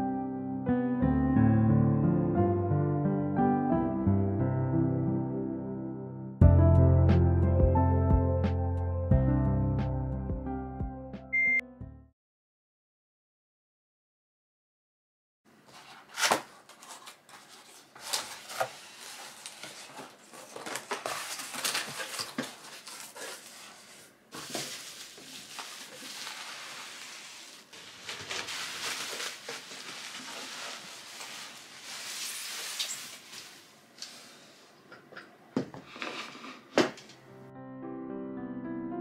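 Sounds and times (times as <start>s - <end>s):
bubble-wrap rustling and crinkling: 15.7s - 33.8s.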